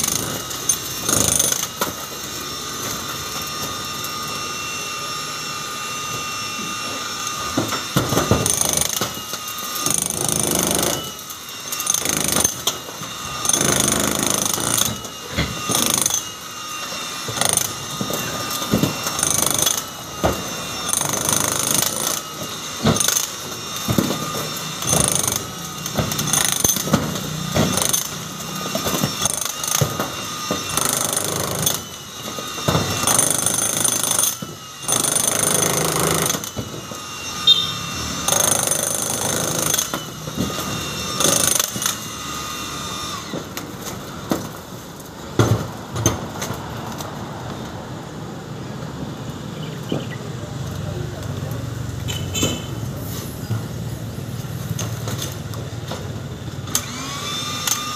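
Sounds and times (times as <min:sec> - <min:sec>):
jackhammer chiselling into concrete: 0:00.0 - 0:02.0, 0:07.6 - 0:16.3, 0:17.0 - 0:43.4.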